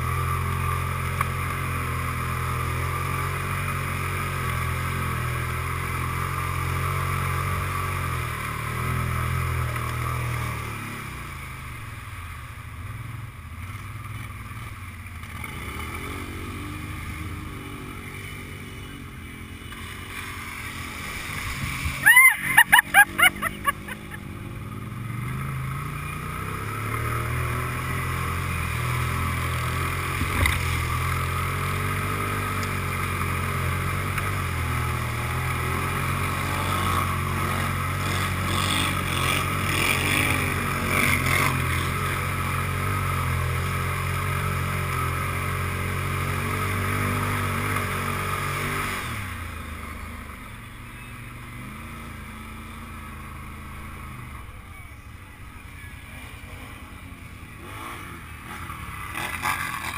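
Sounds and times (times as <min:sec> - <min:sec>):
quad engine running: 0:00.0 - 0:59.9
splashing through mud and water: 0:19.8 - 0:24.1, 0:27.1 - 0:49.8.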